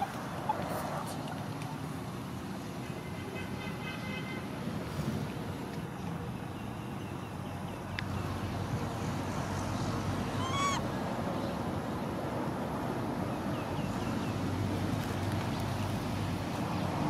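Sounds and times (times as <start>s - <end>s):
rising and falling call: 10.3s - 10.8s.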